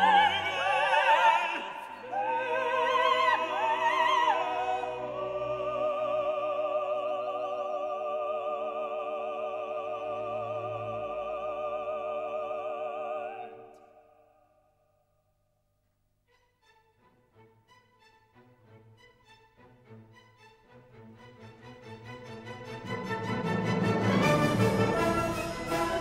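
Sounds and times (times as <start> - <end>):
operatic singing with orchestra: 0.0 - 14.2, 20.9 - 26.0.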